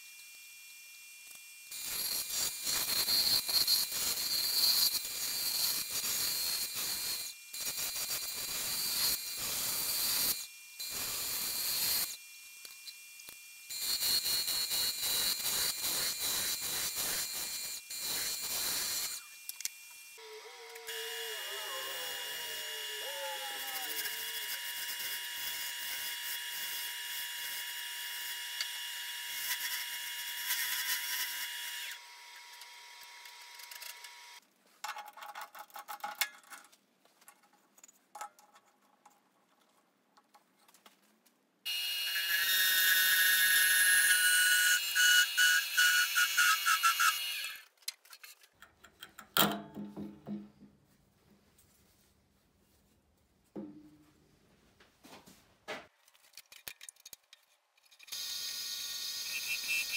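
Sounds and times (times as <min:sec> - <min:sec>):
tool hissing cutting wood: 0:13.7 - 0:19.4, 0:20.2 - 0:27.6, 0:58.1 - 0:59.9
wood lathe running: 0:20.2 - 0:27.6.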